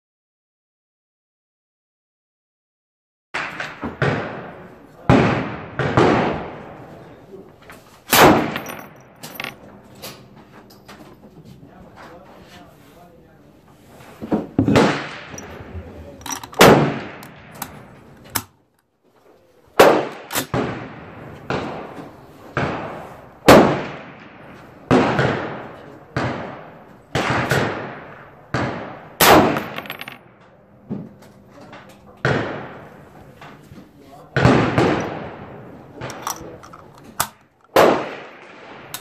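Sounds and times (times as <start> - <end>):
rifle shots with ringing echo: 3.4 - 6.9, 8.1 - 9.6, 14.6 - 18.2, 19.8 - 30.5, 32.2 - 33.4, 34.3 - 39.0.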